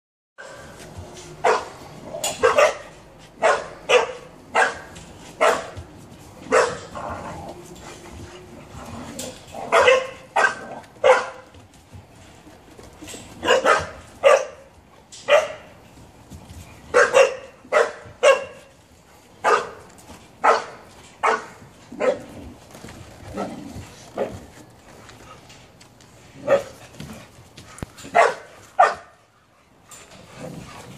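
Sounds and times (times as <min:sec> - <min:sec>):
young dogs barking: 0:01.4 - 0:01.7, 0:02.3 - 0:05.8, 0:06.5 - 0:07.2, 0:09.6 - 0:11.4, 0:13.4 - 0:14.7, 0:16.9 - 0:18.7, 0:19.4 - 0:19.8, 0:20.4 - 0:22.3, 0:28.1 - 0:29.2.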